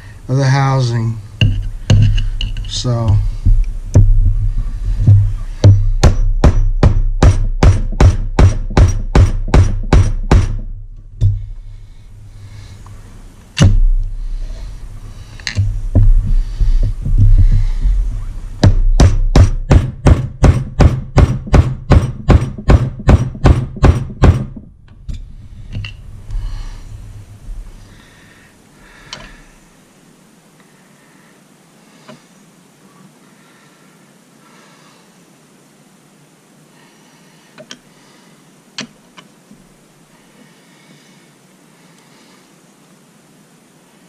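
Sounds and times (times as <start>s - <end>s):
hammer blows on metal driver: 1.4s - 11.7s.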